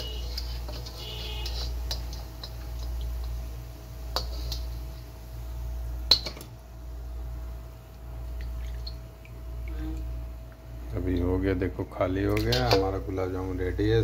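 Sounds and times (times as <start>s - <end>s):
metal spatula clinking on pot: 0.0s - 2.9s
steady low hum: 0.0s - 14.0s.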